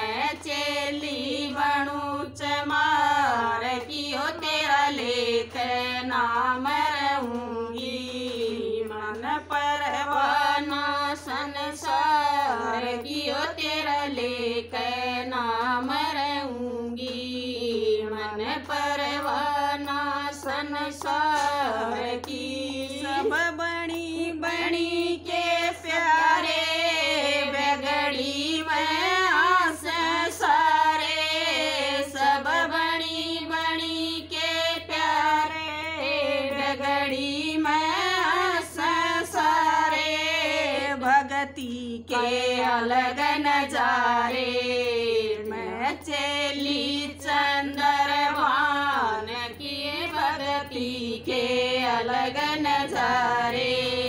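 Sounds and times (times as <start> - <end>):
women singing devotional song: 0.0 - 54.0
hand claps: 3.7 - 40.1.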